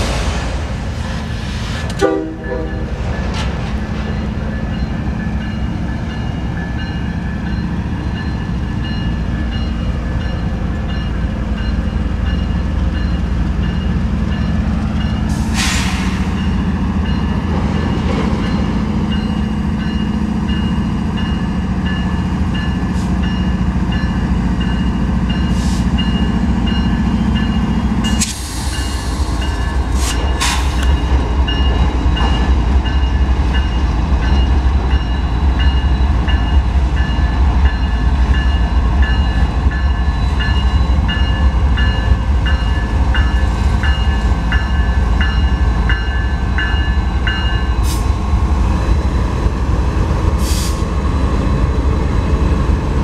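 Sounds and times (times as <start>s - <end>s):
diesel locomotive engines droning: 0.0s - 53.0s
locomotive horn: 1.9s - 2.9s.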